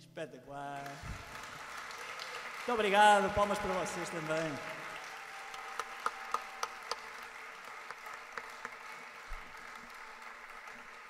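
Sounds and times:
audience applause: 0:00.8 - 0:11.0
single claps: 0:03.4 - 0:11.0.

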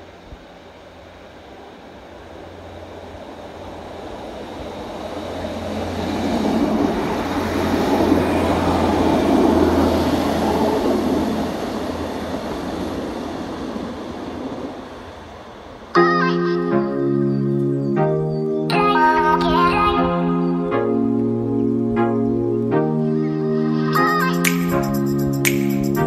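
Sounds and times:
train wheels on rails: 0:00.0 - 0:15.9
diesel train engine rumble: 0:00.0 - 0:16.0.

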